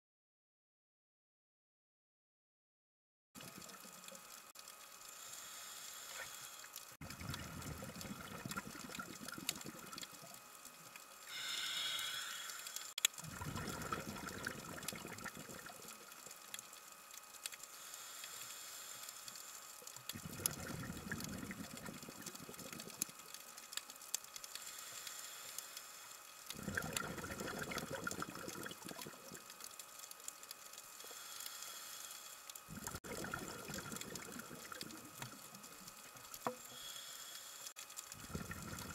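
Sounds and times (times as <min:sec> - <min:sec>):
faint steady hiss: 0:03.4 - 0:38.9
underwater exhalation bubbles: 0:07.0 - 0:10.2, 0:13.2 - 0:16.0, 0:20.1 - 0:23.0, 0:26.5 - 0:29.5, 0:32.7 - 0:35.4, 0:38.2 - 0:38.9.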